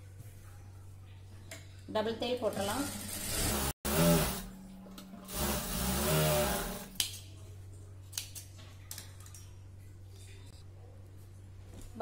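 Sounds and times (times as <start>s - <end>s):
sewing machine running: 3.0s - 4.5s, 5.3s - 6.9s.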